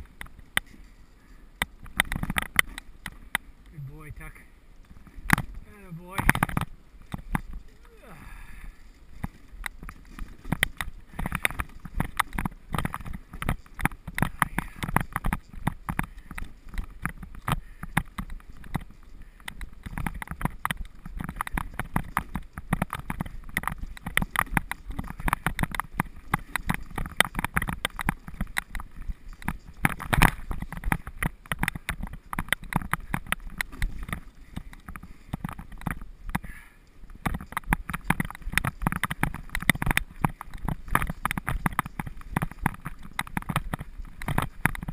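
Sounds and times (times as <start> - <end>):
sled rattling: 0.0 - 44.9
sled runners crunching on snow: 0.0 - 44.9.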